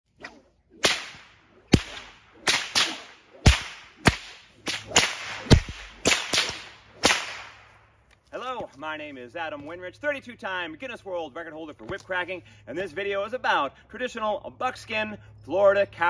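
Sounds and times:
whip cracking with echo: 0.2 - 7.8.

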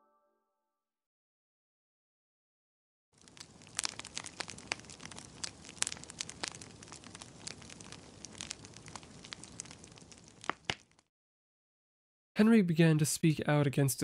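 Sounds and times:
fire crackling: 3.2 - 11.1.

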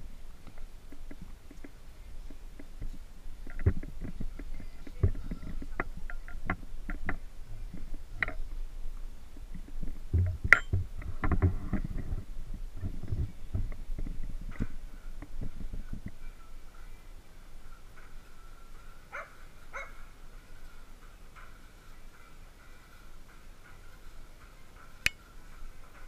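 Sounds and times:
handling knocks and thumps: 2.6 - 7.2, 9.5 - 12.2.

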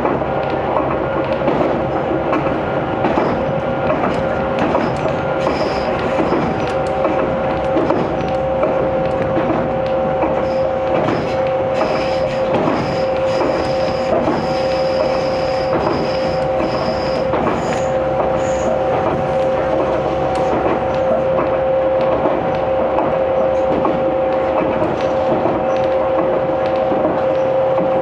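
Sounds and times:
train rumble: 0.0 - 28.0
wheels clacking on track: 0.0 - 28.0
high wheel squeal: 5.4 - 6.6, 10.4 - 18.8.

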